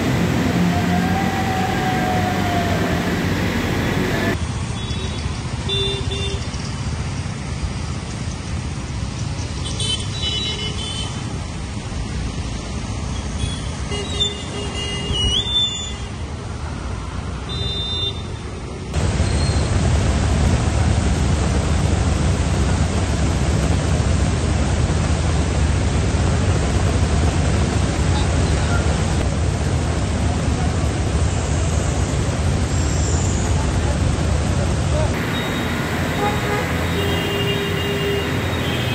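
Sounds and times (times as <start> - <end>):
heavy rain pouring: 0.0 - 4.4, 19.0 - 32.8, 33.6 - 38.9
traffic on wet road: 0.0 - 38.9.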